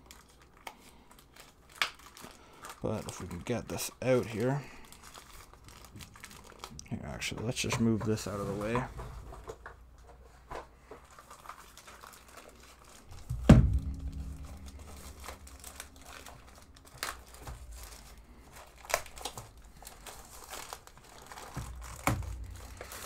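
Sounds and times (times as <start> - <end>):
plastic bag crinkling: 0.0 - 23.0.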